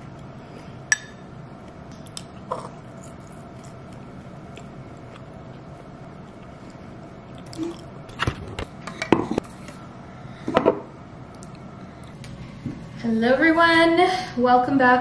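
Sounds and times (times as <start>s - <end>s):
steady low hum: 0.0s - 15.0s
chewing: 2.1s - 7.9s.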